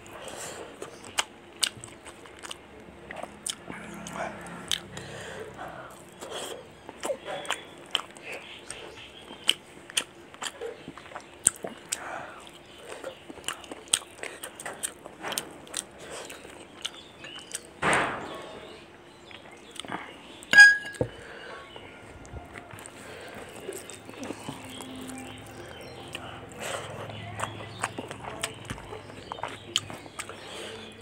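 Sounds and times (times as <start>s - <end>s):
wet chewing and smacking: 0.0s - 17.8s, 19.3s - 31.0s
sharp clink with ringing tone: 20.5s - 21.0s.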